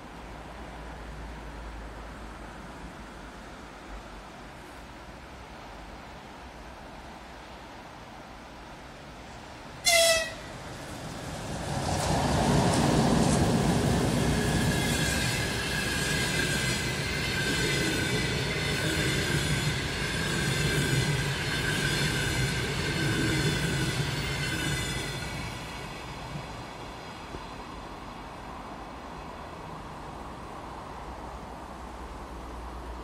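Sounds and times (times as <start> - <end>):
train passing with rumble: 9.1 - 33.0
train horn blast: 9.8 - 10.5.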